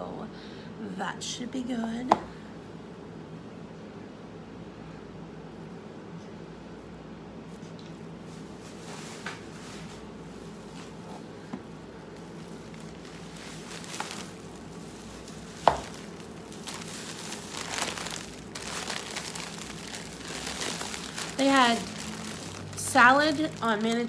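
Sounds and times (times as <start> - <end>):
plastic packaging crinkling: 12.2 - 24.0.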